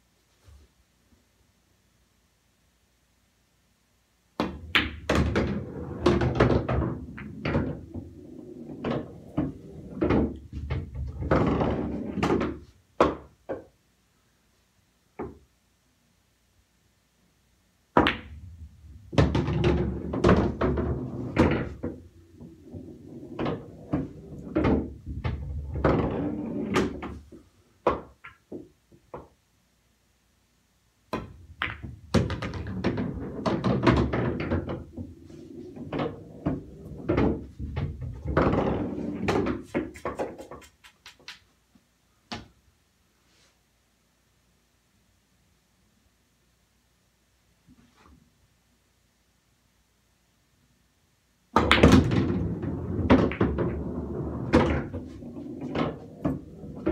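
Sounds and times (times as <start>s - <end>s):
pool balls clacking together: 4.4s - 13.7s, 18.0s - 29.4s, 31.1s - 41.5s, 51.6s - 56.9s
balls rolling and knocking: 4.4s - 13.8s, 17.9s - 29.4s, 31.1s - 41.5s, 51.5s - 56.9s.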